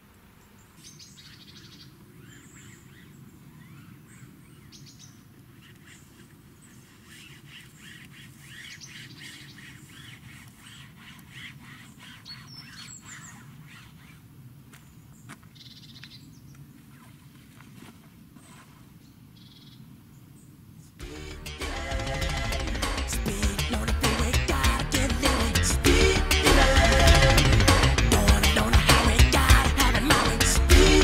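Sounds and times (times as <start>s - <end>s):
songbirds chirping: 0.0s - 17.0s.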